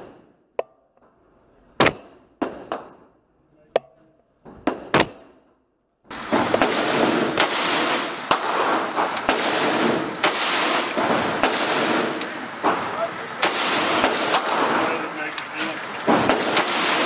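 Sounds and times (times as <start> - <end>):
rifle gunshots: 4.6 - 5.4, 6.1 - 17.0
loud steady noise: 6.1 - 17.0.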